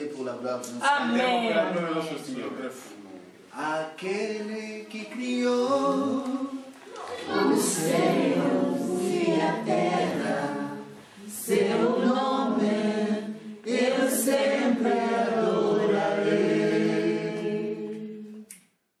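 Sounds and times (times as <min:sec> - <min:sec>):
men singing a cappella: 0:03.6 - 0:18.5.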